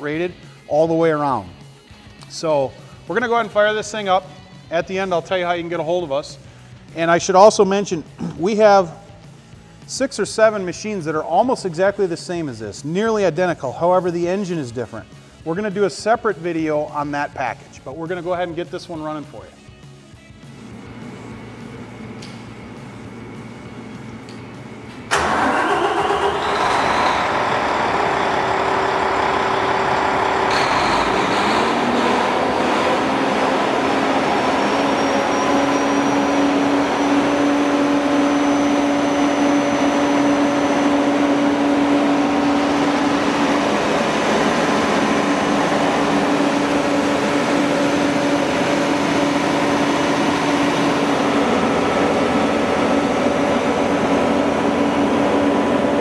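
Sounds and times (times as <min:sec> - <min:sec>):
diesel generator engine running: 0:20.4 - 0:56.0.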